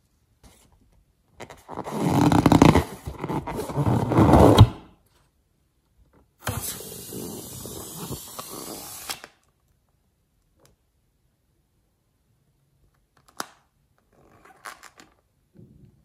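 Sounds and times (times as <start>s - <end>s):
rubbery squeaks of slime balloon: 1.6s - 4.8s.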